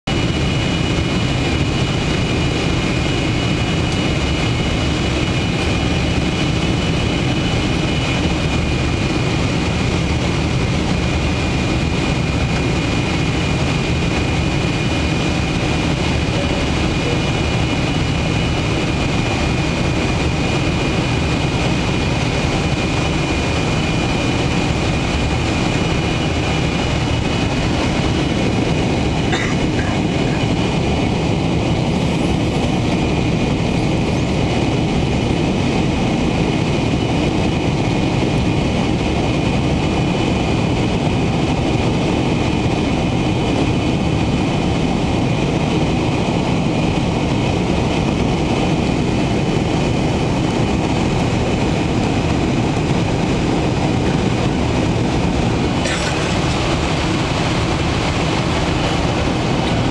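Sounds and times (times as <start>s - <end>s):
jet engines and rushing airflow: 0.0s - 59.9s.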